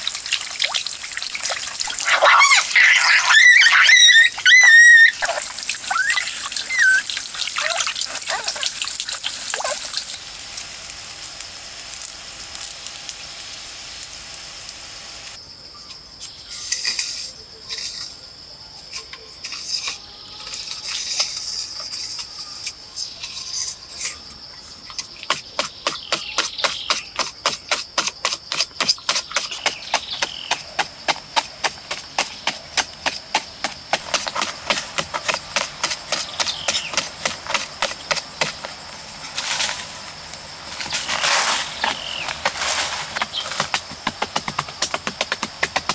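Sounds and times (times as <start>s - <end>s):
water trickling from fountain: 0.0s - 2.1s, 5.2s - 11.1s
stick scraping and chopping soil: 24.9s - 45.9s.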